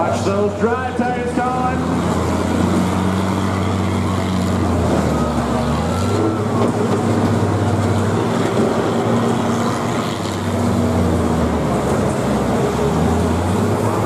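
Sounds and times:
combine engines droning: 0.0 - 14.0.

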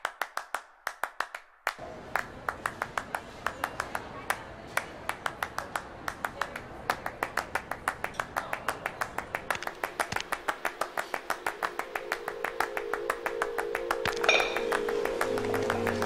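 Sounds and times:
sharp rhythmic clicks: 9.2 - 16.0
droning note: 10.5 - 16.0
bright chime: 11.7 - 16.0.

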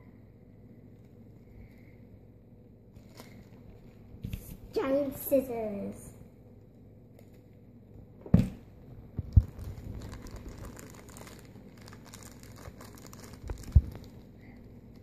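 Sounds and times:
paper wrapping crackling: 2.9 - 4.0, 9.2 - 15.0.

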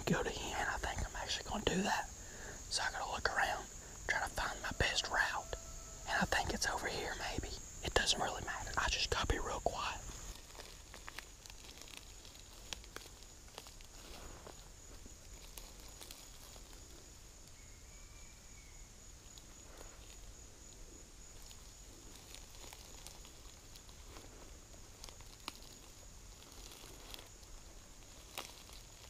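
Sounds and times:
footsteps crunching dry leaves: 9.8 - 16.8, 21.5 - 29.0.

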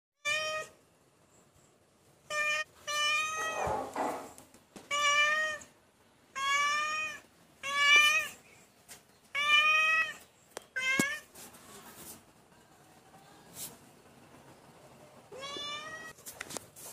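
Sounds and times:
cat meowing: 2.3 - 3.9, 4.9 - 8.4, 9.3 - 11.3, 15.3 - 16.2.

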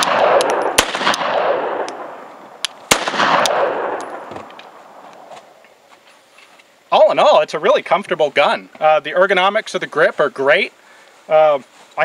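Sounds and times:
pistol shots echoing: 0.0 - 4.8.

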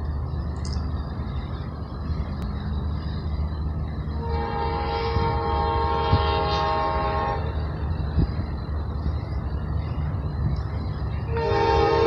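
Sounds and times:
steady low rumble: 0.0 - 11.4
train horn blast: 4.1 - 7.6, 11.3 - 12.0.

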